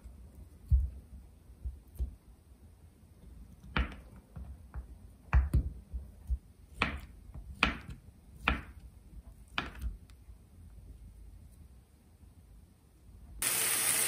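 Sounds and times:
knife chopping on wooden board: 5.3 - 8.8, 9.5 - 10.0.

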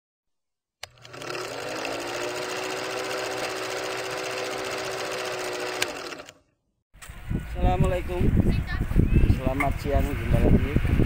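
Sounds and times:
film projector clatter: 0.8 - 6.4.

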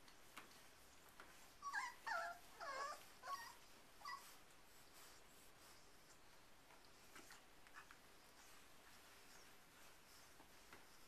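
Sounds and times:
puppy whimpering: 1.4 - 4.4.

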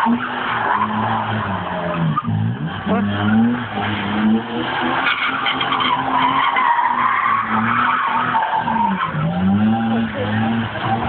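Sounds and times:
car engine at high revs: 0.0 - 11.0
tyres spinning on dirt: 0.0 - 11.0.

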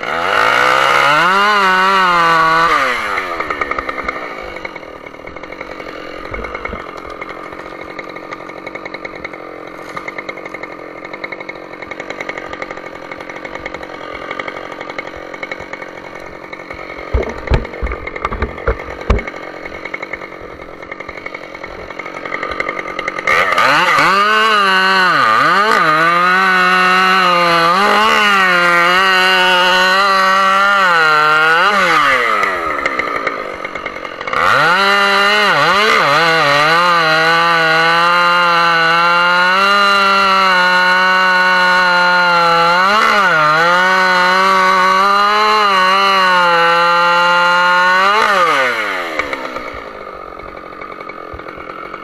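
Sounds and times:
chainsaw cutting into wood: 0.0 - 52.0
chainsaw idling: 0.0 - 52.0
sharp knocks: 17.0 - 19.4.

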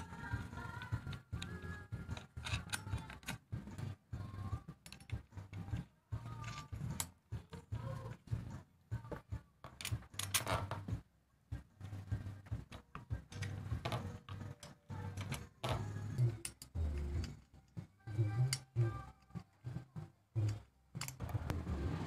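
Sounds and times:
metallic clicks and clinks: 0.0 - 3.4, 9.6 - 10.8, 12.7 - 19.6, 20.4 - 21.4.

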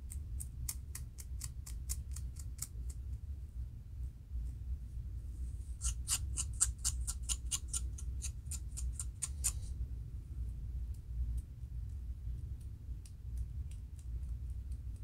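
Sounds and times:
fingernails scratching scalp: 5.8 - 9.7.

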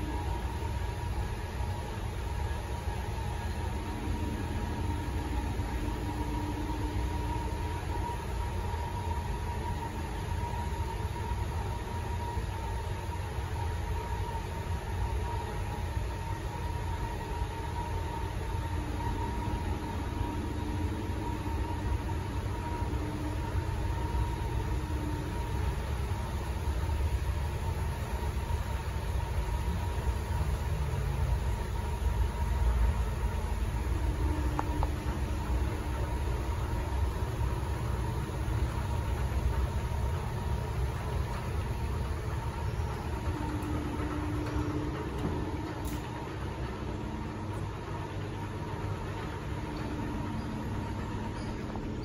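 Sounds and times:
escalator rumble and hum: 0.0 - 52.0
faint steady tone: 0.0 - 52.0.

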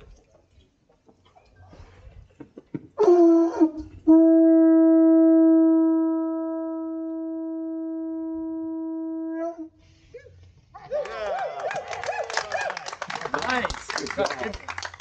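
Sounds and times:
conch shell horn blowing: 4.0 - 9.8.

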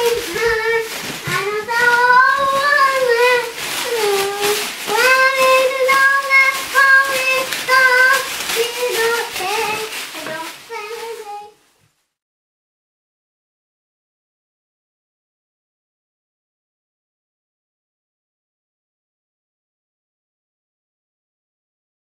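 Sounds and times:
child singing: 0.0 - 11.6.

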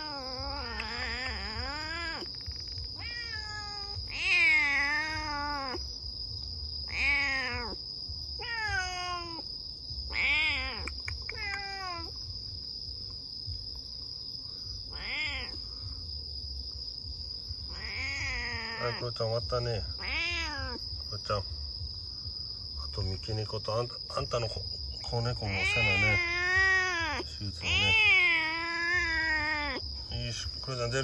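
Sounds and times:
cat yowling: 0.0 - 2.3, 3.0 - 5.9, 6.9 - 7.8, 8.4 - 9.4, 10.1 - 12.2, 14.9 - 15.6, 17.7 - 19.1, 20.0 - 20.8, 25.3 - 29.8.

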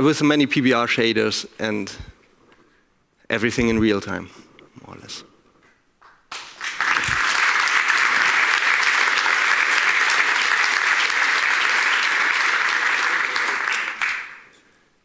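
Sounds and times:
audience applause: 6.3 - 14.6.

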